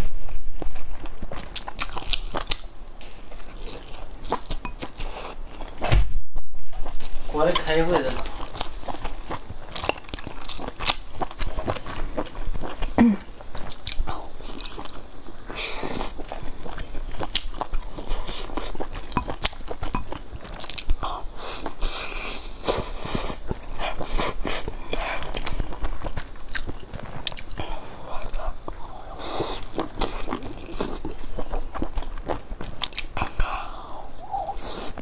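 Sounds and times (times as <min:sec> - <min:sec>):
person chewing and smacking: 0:00.9 - 0:05.8, 0:06.8 - 0:35.0.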